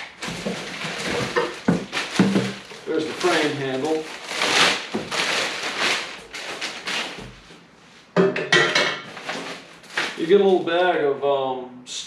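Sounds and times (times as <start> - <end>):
plastic bag crinkling: 0.0 - 7.5, 9.1 - 10.8.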